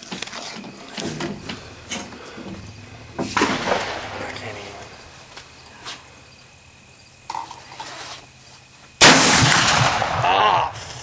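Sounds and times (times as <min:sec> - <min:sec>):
rifle shot: 0:03.3 - 0:04.4, 0:09.0 - 0:10.6.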